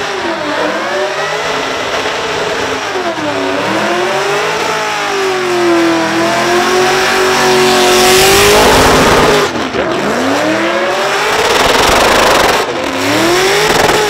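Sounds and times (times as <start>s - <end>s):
car engine revving hard: 0.0s - 14.0s.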